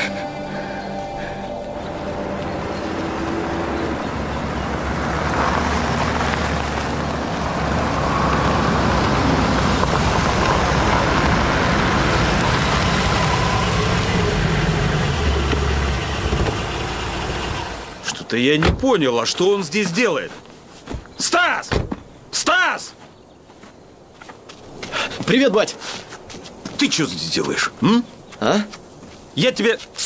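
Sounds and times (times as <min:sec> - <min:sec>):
car engine: 0:00.0 - 0:18.8
tyres on dirt: 0:00.0 - 0:30.0.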